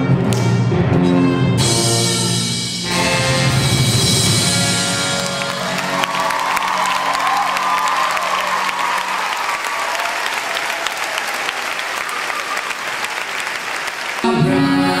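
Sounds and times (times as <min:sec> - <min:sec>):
audience clapping: 0:04.8 - 0:14.8.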